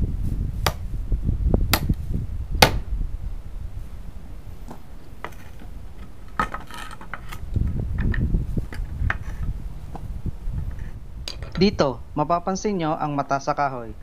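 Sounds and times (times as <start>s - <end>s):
board shifted on concrete: 4.6s - 10.0s
nails and hammer clinking: 5.2s - 7.4s.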